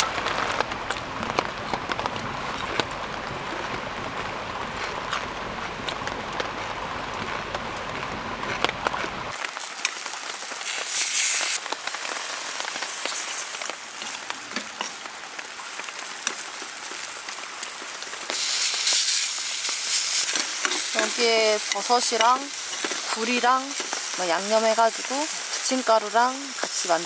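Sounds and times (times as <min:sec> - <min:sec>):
rain pattering on tent: 0:00.0 - 0:27.0
food sizzling in frying pan: 0:09.3 - 0:27.0.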